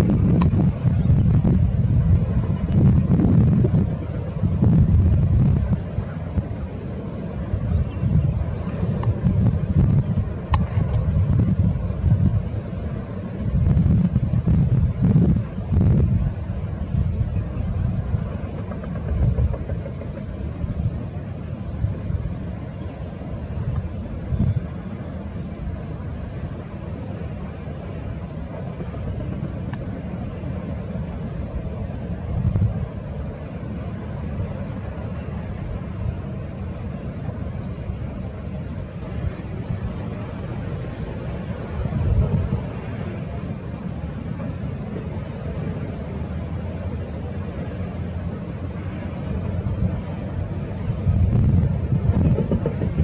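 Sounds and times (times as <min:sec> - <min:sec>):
distant jet engines rumbling: 0:00.0 - 0:53.0.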